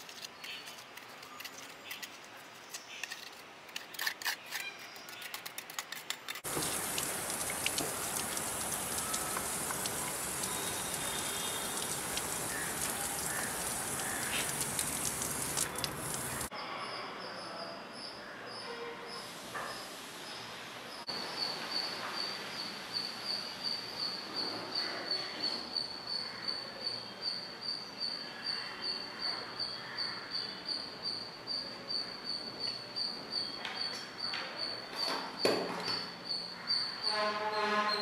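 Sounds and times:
hose spray nozzle hissing: 0:06.4 - 0:16.5.

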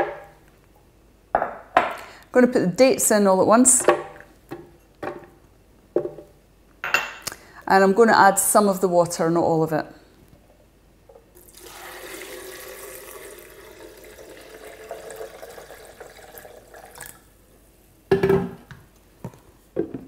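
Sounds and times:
water pouring into blender jar: 0:11.4 - 0:17.2.

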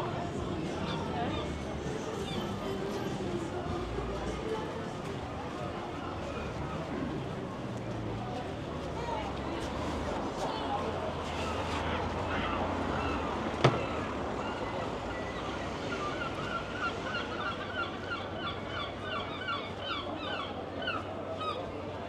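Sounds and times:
street and seafront background noise: 0:00.0 - 0:22.0
seagull calling: 0:15.9 - 0:21.6.

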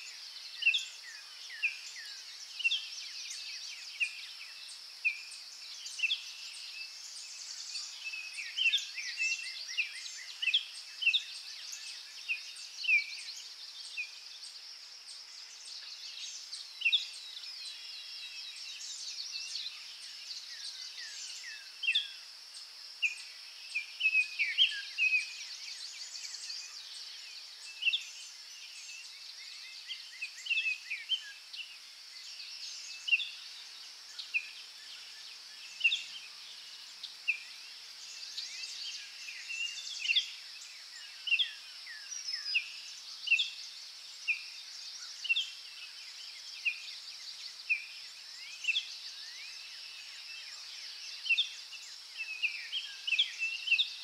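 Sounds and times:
steady high-pitched hiss: 0:00.0 - 0:54.0.

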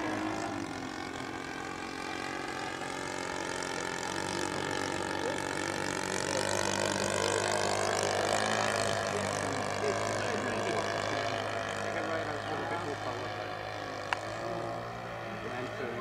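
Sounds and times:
model plane engine and propeller: 0:00.0 - 0:16.0.

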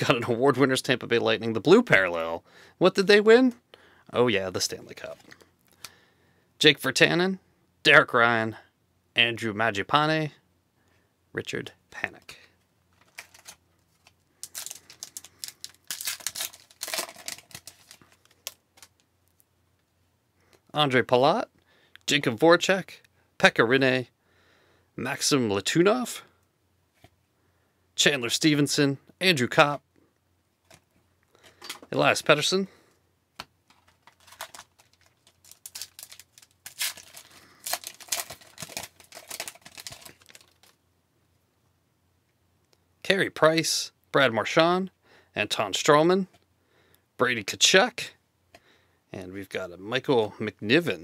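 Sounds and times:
cards rustling: 0:12.9 - 0:19.1, 0:33.4 - 0:40.8
wrapper tearing and crinkling: 0:13.0 - 0:19.0, 0:33.8 - 0:40.8.

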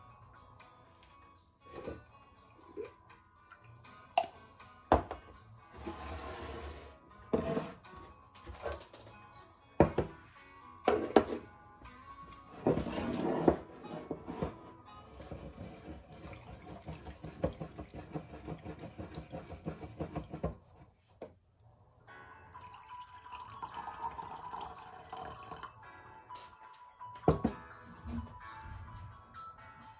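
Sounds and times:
soft background music: 0:00.0 - 0:29.9
tea pouring into a mug: 0:22.5 - 0:25.8.

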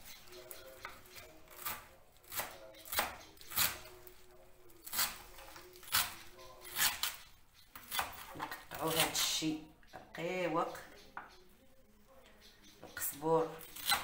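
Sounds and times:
knife chopping vegetables: 0:00.3 - 0:04.0, 0:04.8 - 0:09.3, 0:13.6 - 0:14.0.

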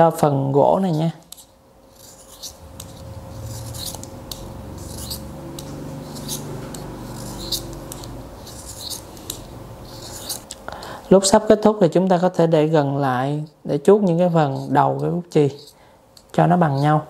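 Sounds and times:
knife shaving pencil wood: 0:01.3 - 0:02.6, 0:06.0 - 0:10.5.

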